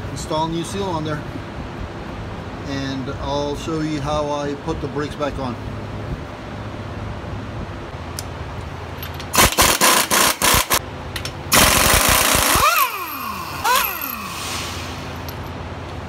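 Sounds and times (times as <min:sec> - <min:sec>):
impact wrench spinning whine: 0:09.0 - 0:10.8, 0:11.5 - 0:15.5
impact wrench rattling bursts: 0:09.0 - 0:15.5.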